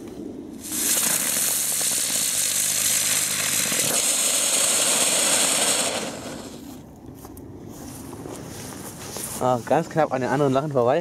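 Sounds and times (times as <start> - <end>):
ground-spinner firework hissing buzz: 0.5 - 6.8.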